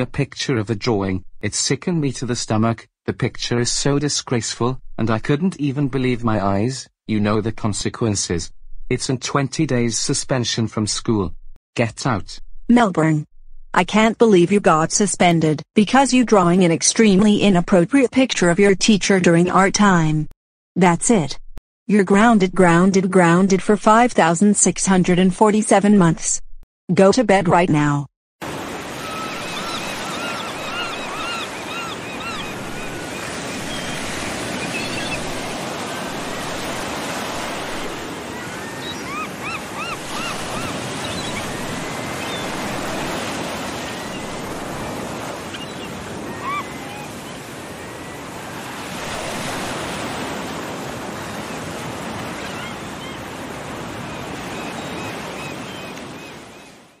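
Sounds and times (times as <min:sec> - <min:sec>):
ocean surf washing: 0:28.4 - 0:56.7.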